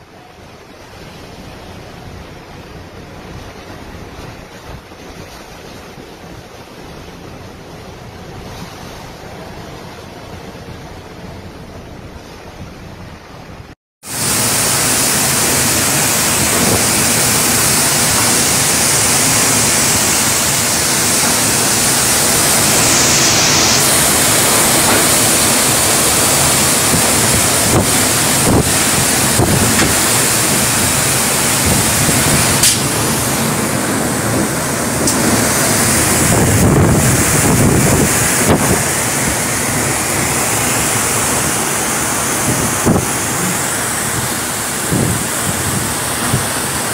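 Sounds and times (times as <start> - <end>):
gusting wind: 0.0 - 46.9
heavy rain: 14.0 - 46.9.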